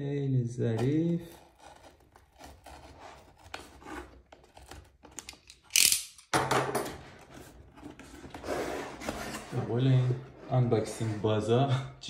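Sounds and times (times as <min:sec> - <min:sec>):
knife scratching cardboard: 0:00.8 - 0:05.2.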